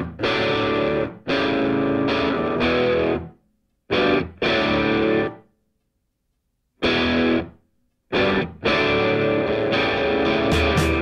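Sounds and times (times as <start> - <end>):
distorted electric guitar chords: 0.0 - 3.3, 3.9 - 5.4, 6.8 - 7.5, 8.1 - 11.0.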